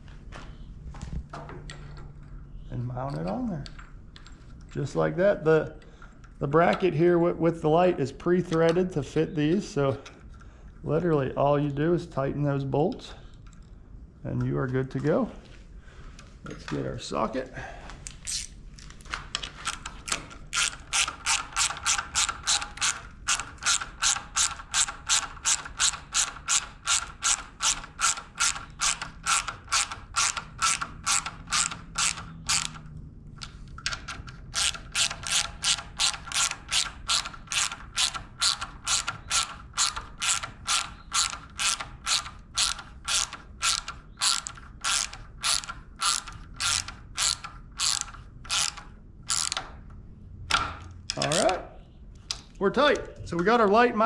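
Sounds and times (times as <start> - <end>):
ratchet wrench clicking: 19.6 - 49.8.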